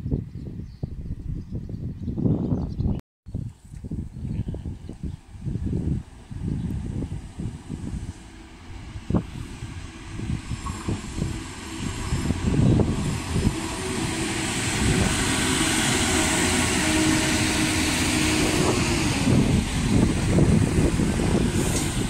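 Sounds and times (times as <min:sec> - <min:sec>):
train engine hum: 0:03.4 - 0:22.0
train wheels rushing past: 0:05.3 - 0:22.0.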